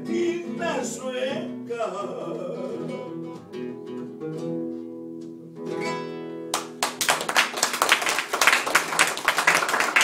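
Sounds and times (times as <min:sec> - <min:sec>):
acoustic guitar notes: 0:00.0 - 0:06.8
applause: 0:06.5 - 0:10.0.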